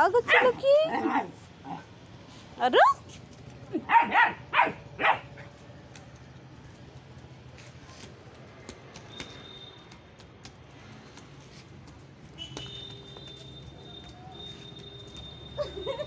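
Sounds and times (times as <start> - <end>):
dog barking: 0.3 - 0.6, 3.9 - 5.3.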